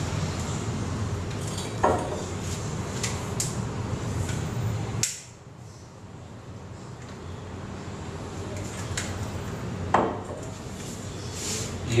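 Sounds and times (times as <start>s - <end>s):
glass bottles clinking: 1.4s - 2.2s.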